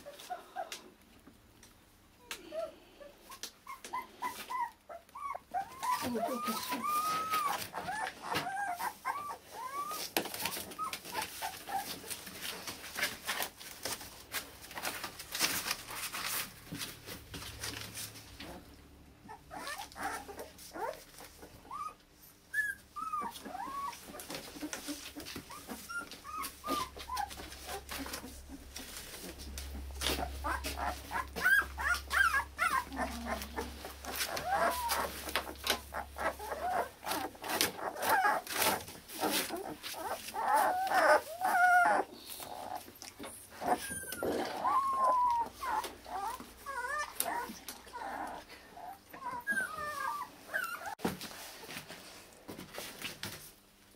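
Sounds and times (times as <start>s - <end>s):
puppies whimpering and yipping: 2.4s - 16.5s, 19.2s - 51.1s.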